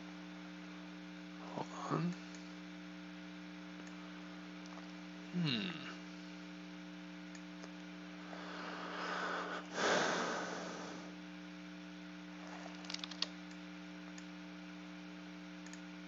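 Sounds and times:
electrical mains hum: 0:00.0 - 0:16.0
man's voice murmuring: 0:01.4 - 0:02.2, 0:05.3 - 0:06.0
faint clicks: 0:02.1 - 0:02.8, 0:03.8 - 0:04.0, 0:07.3 - 0:07.9, 0:12.5 - 0:14.3, 0:15.6 - 0:15.9
breathy rush: 0:08.2 - 0:11.1.

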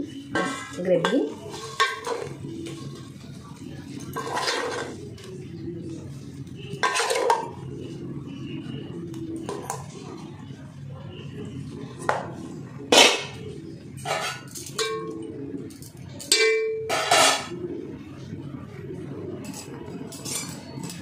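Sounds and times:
metal pots clanging: 0:00.0 - 0:05.3, 0:06.6 - 0:07.8, 0:12.1 - 0:17.6, 0:19.4 - 0:21.0.

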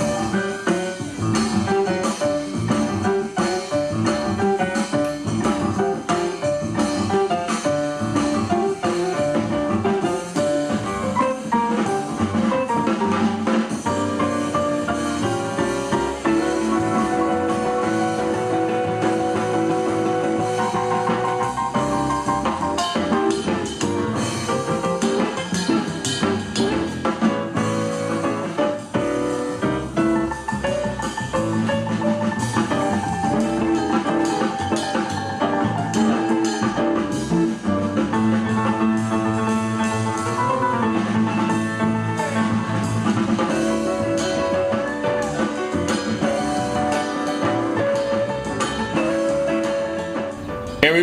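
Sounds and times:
drums: 0:00.0 - 0:51.0
instrumental music with guitar: 0:00.0 - 0:51.0
drum beat: 0:50.4 - 0:51.0.

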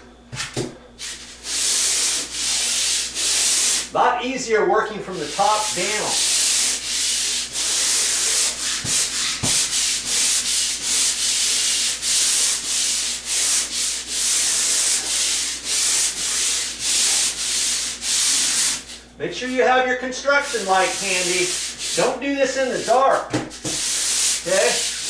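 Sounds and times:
pole sander rasping on drywall: 0:00.4 - 0:03.9, 0:05.0 - 0:25.0.

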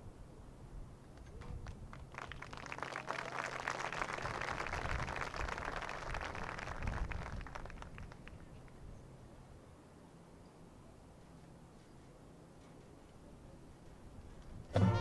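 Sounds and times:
small crowd applauding: 0:01.2 - 0:08.8.

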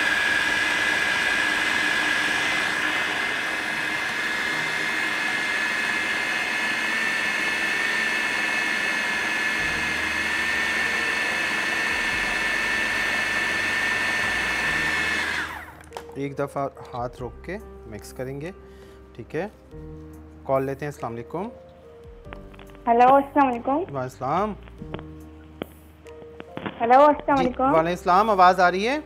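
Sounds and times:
food processor motor whining: 0:00.0 - 0:16.0.

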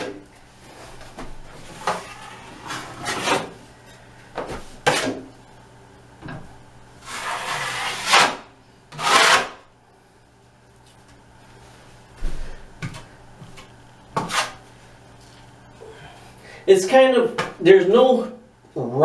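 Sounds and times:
taping knife scraping compound: 0:07.0 - 0:09.6, 0:14.2 - 0:14.6.

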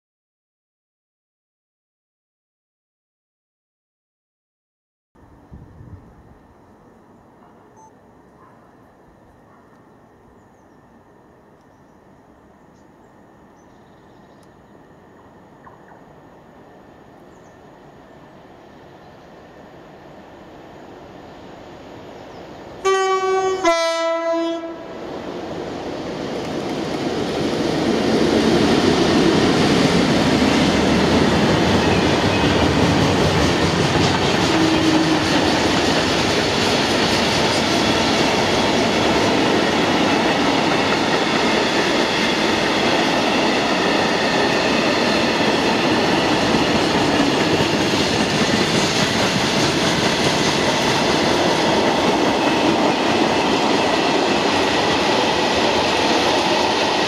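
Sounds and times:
locomotive two-tone horn: 0:22.8 - 0:24.9, 0:34.4 - 0:35.5
train wheels clickety-clack: 0:25.9 - 0:57.0.

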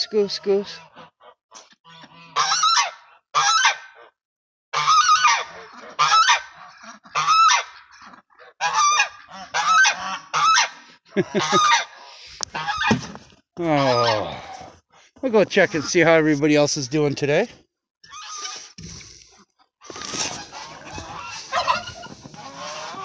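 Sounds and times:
goose honking: 0:00.0 - 0:04.1, 0:04.7 - 0:13.0, 0:13.7 - 0:14.6, 0:19.9 - 0:23.0.

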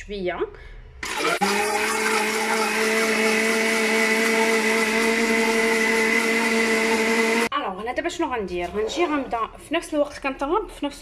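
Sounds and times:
blender motor whine: 0:01.0 - 0:07.5.

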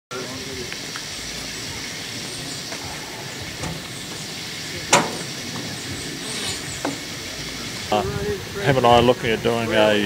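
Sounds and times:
hissing outdoor background noise: 0:00.1 - 0:10.0
sharp knock: 0:04.9 - 0:05.3.

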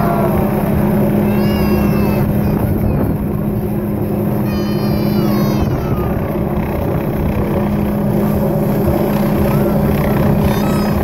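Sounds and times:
helicopter hovering overhead: 0:00.0 - 0:11.0.

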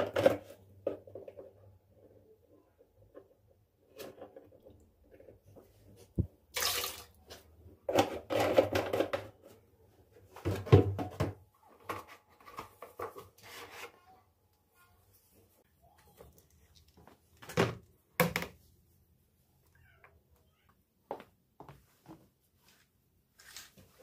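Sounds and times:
knocks and clatter of objects: 0:00.0 - 0:01.7, 0:07.8 - 0:09.6, 0:10.3 - 0:13.7
water running in spurts: 0:06.5 - 0:07.2.

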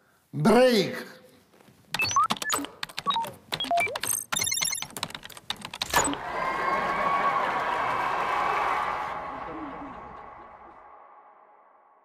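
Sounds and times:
electronic clicks and beeps: 0:01.9 - 0:06.2
fast electronic trill: 0:02.0 - 0:05.1.

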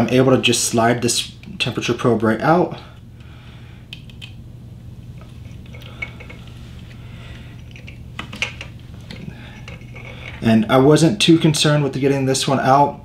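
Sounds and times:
steady low hum: 0:00.0 - 0:13.0
light clicks and rustles of handling: 0:05.0 - 0:10.5.

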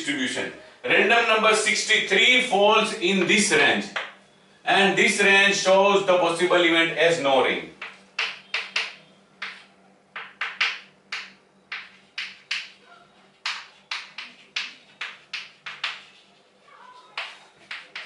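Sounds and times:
chalk on blackboard: 0:07.8 - 0:18.0.

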